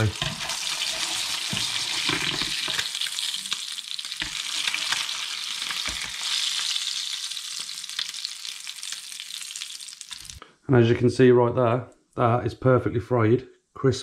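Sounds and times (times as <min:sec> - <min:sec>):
fish sizzling in a grill pan: 0:00.0 - 0:10.4
spatula knocking and scraping pan: 0:00.1 - 0:02.9.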